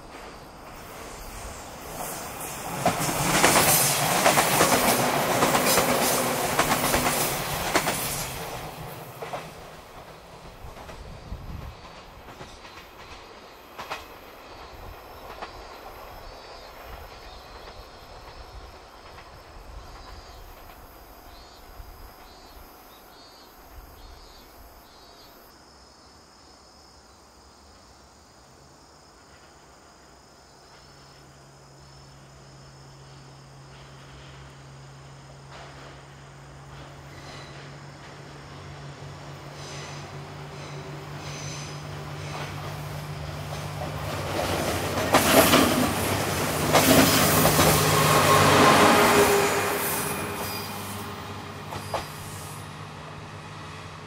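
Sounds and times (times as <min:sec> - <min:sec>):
train wheels clattering over rail joints: 0:01.8 - 0:21.4, 0:35.4 - 0:49.1, 0:50.2 - 0:52.6.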